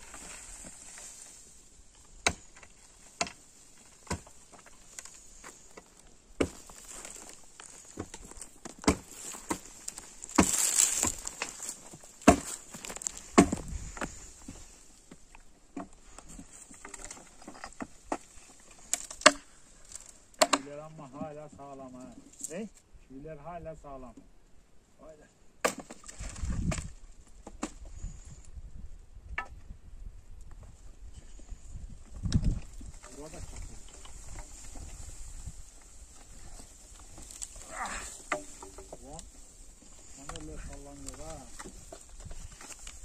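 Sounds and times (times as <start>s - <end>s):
debris scraping and rustling: 0.0s - 20.6s, 32.2s - 43.0s.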